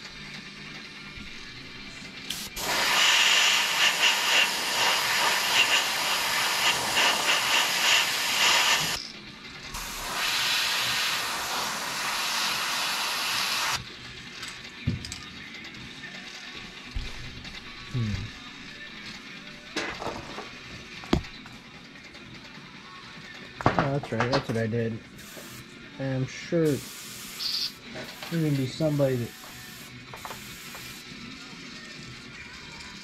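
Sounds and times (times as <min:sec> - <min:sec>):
airbrush spraying hiss: 0:02.3 - 0:09.0, 0:09.8 - 0:13.8, 0:25.2 - 0:25.6, 0:26.7 - 0:31.0.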